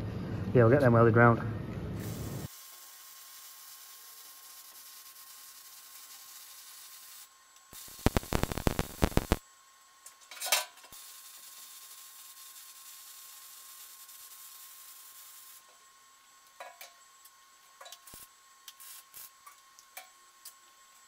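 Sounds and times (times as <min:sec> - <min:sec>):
arc welding crackling: 0:02.0 - 0:21.0
faint steady hiss: 0:07.9 - 0:09.4.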